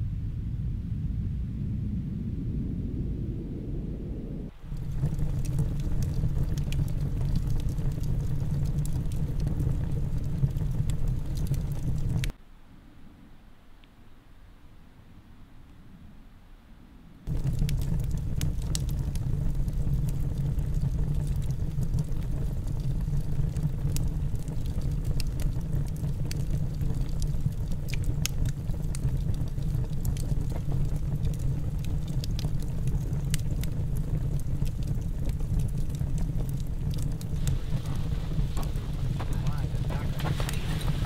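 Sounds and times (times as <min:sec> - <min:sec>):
low rumble: 0:00.0 - 0:12.3, 0:17.3 - 0:41.0
wood stove fire crackling: 0:04.5 - 0:12.4, 0:17.3 - 0:41.0.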